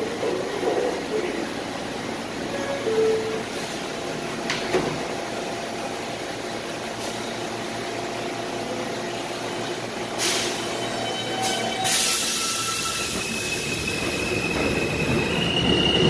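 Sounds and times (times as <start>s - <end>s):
subway train equipment hum: 0.0s - 16.0s
train doors sliding shut: 2.5s - 5.2s.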